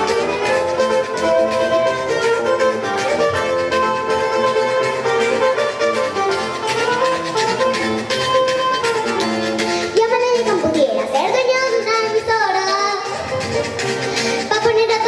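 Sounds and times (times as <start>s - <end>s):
acoustic string ensemble playing: 0.0s - 10.1s.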